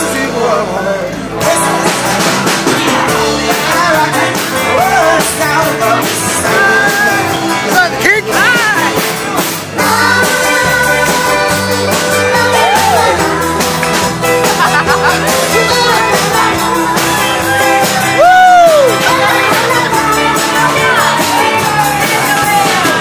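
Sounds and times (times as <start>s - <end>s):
dance song with singer: 9.7s - 14.4s, 15.1s - 23.0s.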